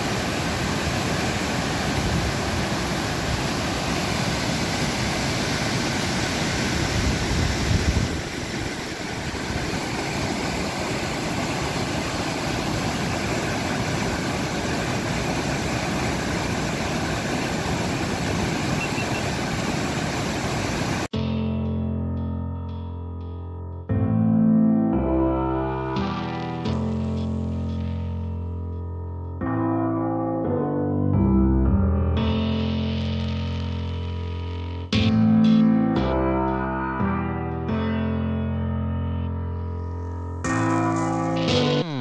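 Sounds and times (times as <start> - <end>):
waterfall rushing: 0.0 - 21.1
keyboard music: 21.2 - 33.6, 34.6 - 42.0.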